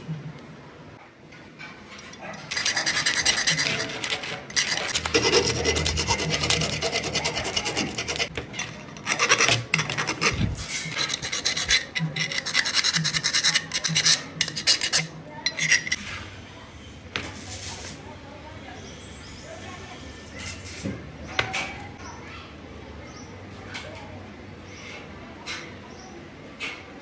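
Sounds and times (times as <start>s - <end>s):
steel tube scraping on wood: 1.9s - 16.2s.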